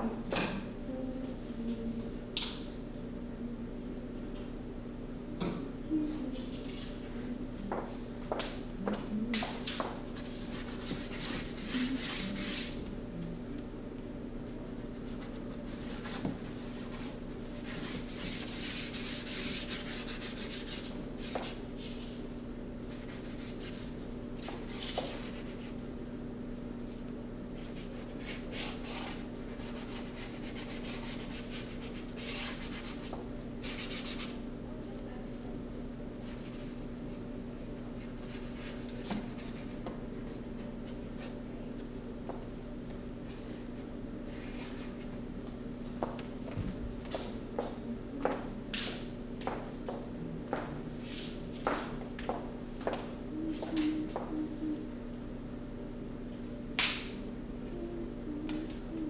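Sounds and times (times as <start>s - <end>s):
steady low hum: 0.0s - 59.0s
paintbrush scrubbing cardboard: 10.1s - 12.8s, 14.6s - 21.6s, 27.6s - 34.3s.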